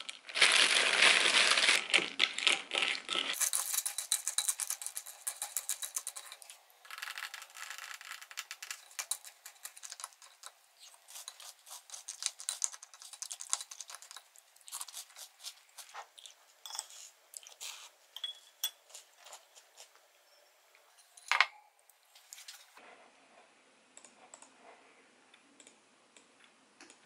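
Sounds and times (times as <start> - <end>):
spoon scraping a ceramic bowl: 3.3 - 6.6, 8.3 - 21.3.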